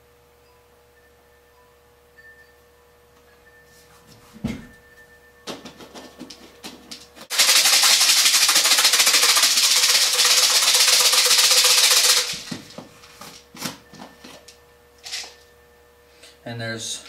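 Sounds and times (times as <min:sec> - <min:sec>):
dry food rattling in plastic cup: 0:07.3 - 0:12.5.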